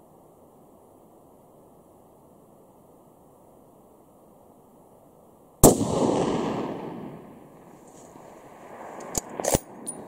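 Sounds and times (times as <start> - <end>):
gunshot echo: 5.6 - 7.6
rifle shot: 5.6 - 7.6, 8.2 - 10.0.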